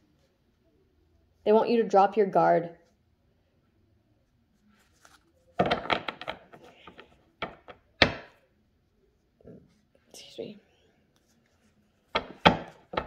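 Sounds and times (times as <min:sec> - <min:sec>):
knocks on wooden surface: 0:12.2 - 0:13.0.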